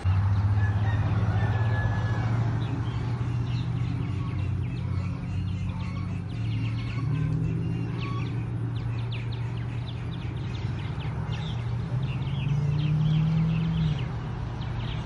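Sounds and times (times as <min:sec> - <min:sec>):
chickens clucking: 0:01.0 - 0:11.9.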